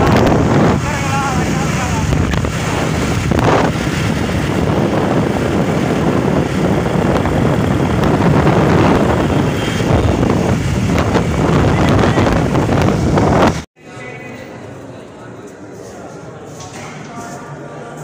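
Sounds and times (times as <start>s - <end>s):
motorcycle engines: 0.0s - 13.7s
wind buffeting microphone: 0.0s - 13.7s.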